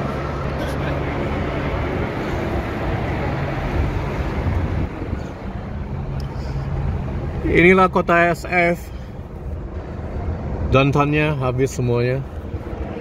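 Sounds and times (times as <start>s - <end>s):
road and engine noise in car: 0.0s - 13.0s
wind rumbling on microphone: 1.2s - 7.4s.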